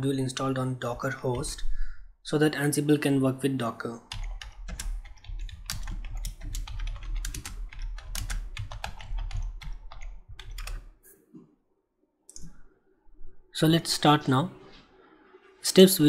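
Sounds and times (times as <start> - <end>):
computer keyboard typing: 4.1 - 11.0.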